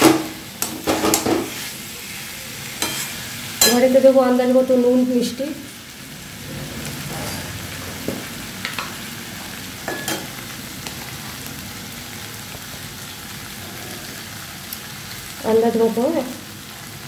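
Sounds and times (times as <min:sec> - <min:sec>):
metal utensil scraping pan: 0:00.0 - 0:01.7, 0:02.8 - 0:04.0
potatoes sizzling in oil: 0:00.0 - 0:17.0.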